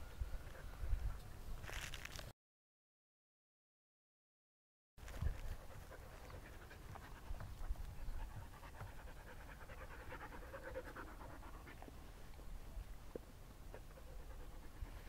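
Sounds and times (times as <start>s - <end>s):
puppy panting: 5.2s - 12.0s, 13.7s - 15.0s.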